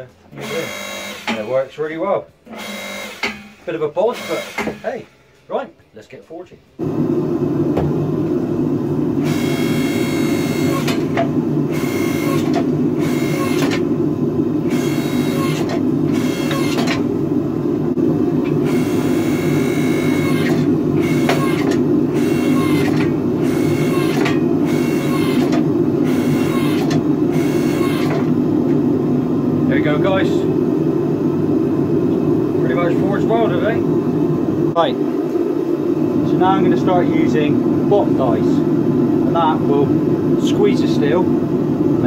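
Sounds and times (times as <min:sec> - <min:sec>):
motor and hydraulic pump humming: 0:00.0 - 0:01.7, 0:02.4 - 0:05.6, 0:07.6 - 0:42.0
high-pitched whine: 0:09.2 - 0:13.7, 0:17.9 - 0:41.3.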